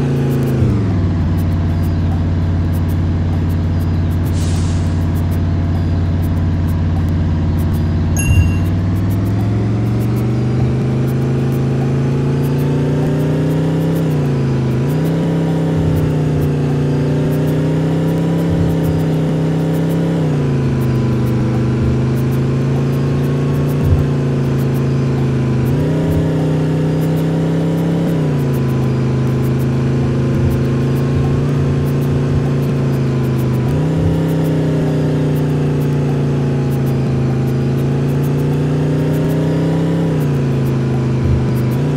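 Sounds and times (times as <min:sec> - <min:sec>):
bus engine revving: 0:00.0 - 0:41.9.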